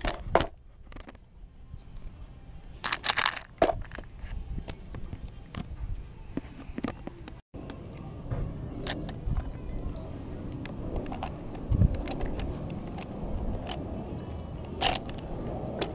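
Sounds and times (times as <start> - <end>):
low rumble: 7.6 - 15.9.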